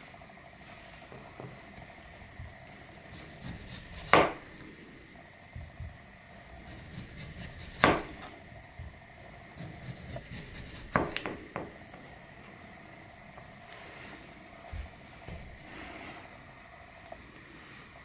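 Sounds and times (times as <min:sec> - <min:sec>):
faint rubbing and handling: 0:00.6 - 0:04.1, 0:13.5 - 0:18.0
knife knocking on cutting board: 0:04.0 - 0:04.4, 0:07.7 - 0:08.3, 0:10.9 - 0:11.7.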